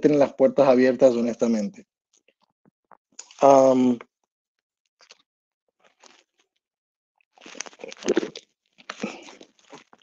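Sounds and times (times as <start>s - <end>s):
plastic bottle crinkling: 7.4s - 10.0s.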